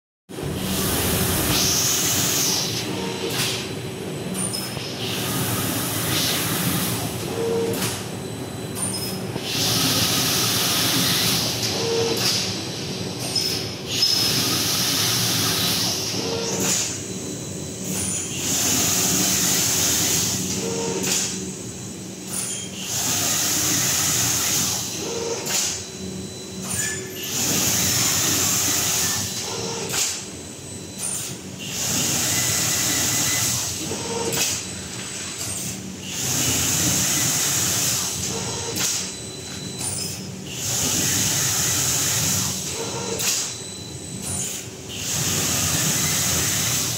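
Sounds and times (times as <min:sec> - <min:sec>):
bag-making machine hissing: 0:00.4 - 0:03.7, 0:04.8 - 0:07.8, 0:09.1 - 0:17.0, 0:17.8 - 0:21.5, 0:22.3 - 0:25.8, 0:26.8 - 0:30.2, 0:31.0 - 0:39.1, 0:40.1 - 0:43.5, 0:44.3 - 0:46.9.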